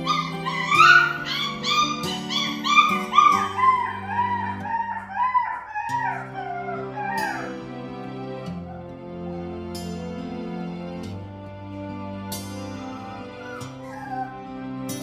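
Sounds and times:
puppy yelping and whining: 0.0 - 7.6, 8.6 - 9.0, 12.7 - 14.5
soft background music: 0.0 - 15.0.

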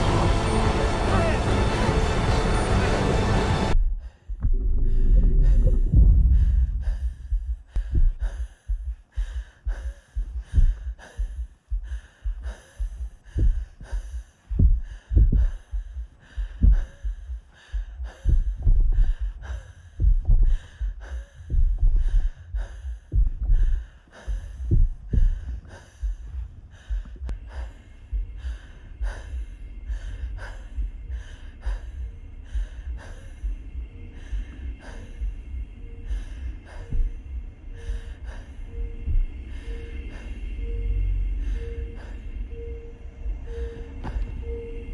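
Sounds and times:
heavy low heartbeat thumps: 3.6 - 44.9
woman breathing hard and gasping: 3.8 - 44.9
faint steady tone: 20.8 - 44.9.

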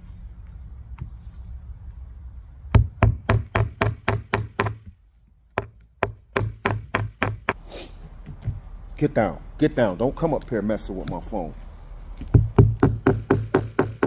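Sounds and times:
hammer striking nails into wood: 2.7 - 4.9, 5.6 - 7.6, 12.2 - 14.0.

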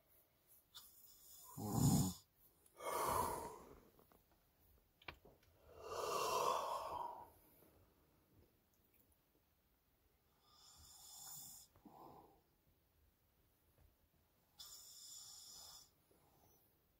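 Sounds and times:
man snoring: 1.2 - 2.2, 2.8 - 3.6, 5.8 - 7.2, 14.6 - 15.9
noisy breath: 2.7 - 3.9, 5.6 - 7.9, 10.3 - 12.5.

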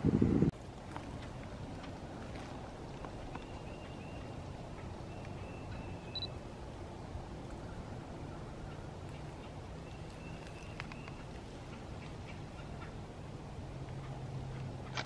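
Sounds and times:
low background noise: 0.0 - 15.0
camera beep: 6.1 - 6.3.

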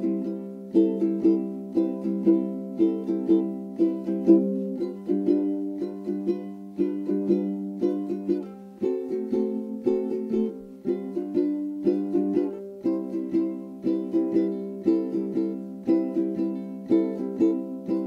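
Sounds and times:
plucked string tune: 0.0 - 18.0.

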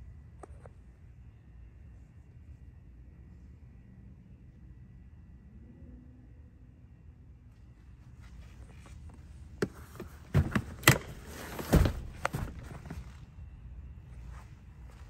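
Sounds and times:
rustling: 7.9 - 13.4
seat latch clicks and clunks: 9.6 - 13.1.

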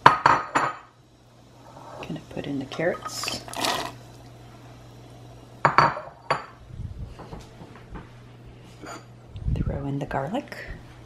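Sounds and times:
dishes clinking: 5.7 - 6.6.

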